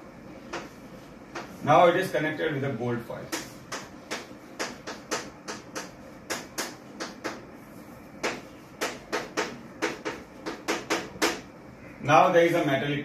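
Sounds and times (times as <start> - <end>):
chalk tapping on a blackboard: 0.4 - 1.6, 3.2 - 11.5.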